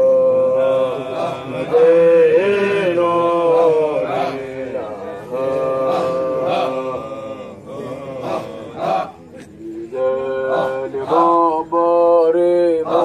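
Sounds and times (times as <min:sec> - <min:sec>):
devotional chanting: 0:00.0 - 0:13.0.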